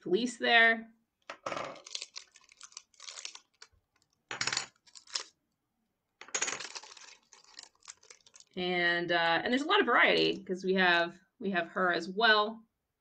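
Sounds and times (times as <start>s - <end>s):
game chips clinking: 6.2s - 8.4s.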